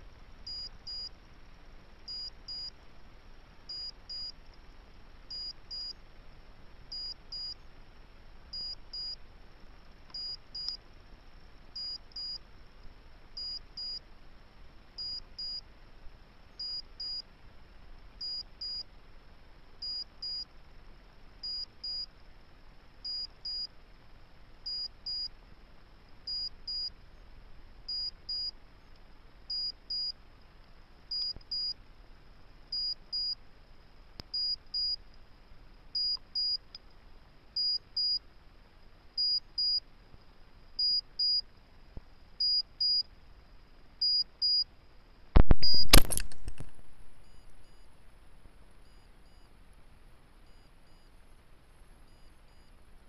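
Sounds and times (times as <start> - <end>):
faint hiss: 0.0 - 53.0
electronic double beeps: 45.4 - 47.9.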